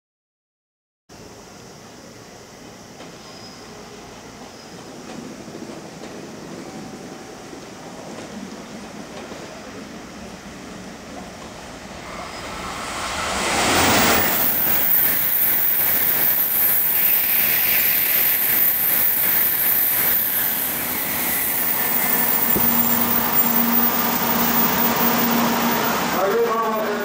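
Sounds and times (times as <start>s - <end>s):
bullet train rushing past: 1.2s - 27.0s.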